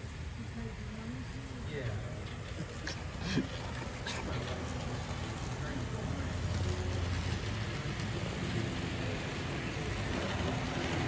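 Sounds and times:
model train running on track: 0:00.0 - 0:11.0.

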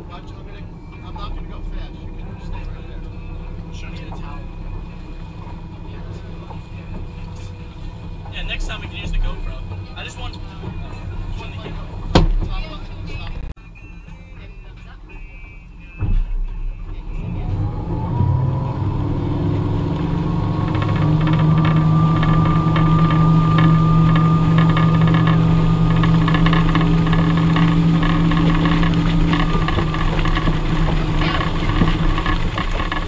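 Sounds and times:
water wash: 0:00.0 - 0:13.3, 0:17.1 - 0:33.0
boat engine throttling up: 0:00.0 - 0:13.5, 0:16.3 - 0:33.0
thump: 0:12.1 - 0:12.6, 0:16.0 - 0:16.6.

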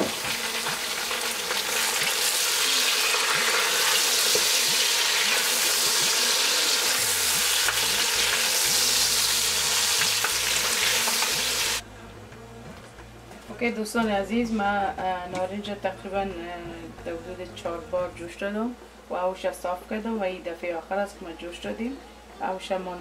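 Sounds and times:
meat sizzling in hot oil: 0:00.0 - 0:11.8.

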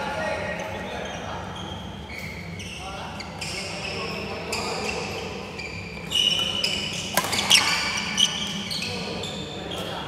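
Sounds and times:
shoes squeaking on floor: 0:01.0 - 0:10.0
rackets hitting shuttlecock: 0:07.0 - 0:08.0.

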